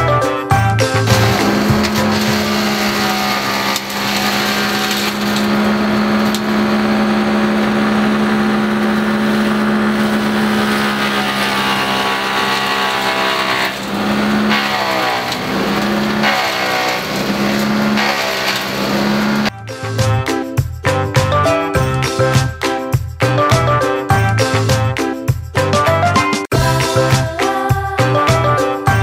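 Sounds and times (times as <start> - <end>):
wood chipper engine running: 1.0 - 19.5.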